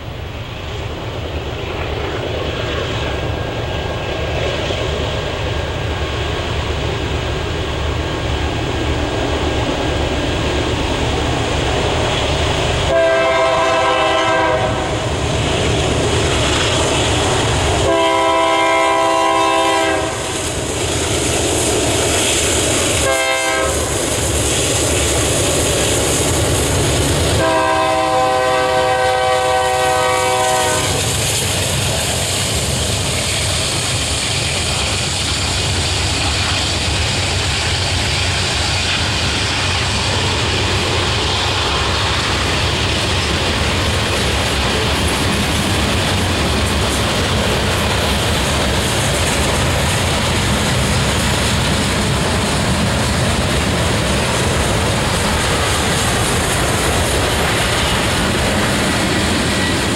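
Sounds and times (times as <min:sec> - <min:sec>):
diesel locomotive engine rumble: 0:00.0 - 0:59.9
locomotive horn blasts: 0:12.9 - 0:15.0, 0:17.8 - 0:20.3, 0:23.0 - 0:23.8, 0:27.4 - 0:31.1.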